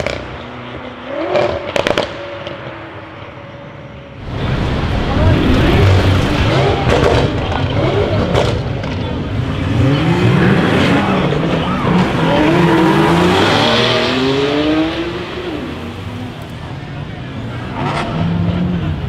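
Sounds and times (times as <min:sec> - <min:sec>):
car engine accelerating: 0:04.1 - 0:19.0
sharp crack: 0:04.2 - 0:09.1.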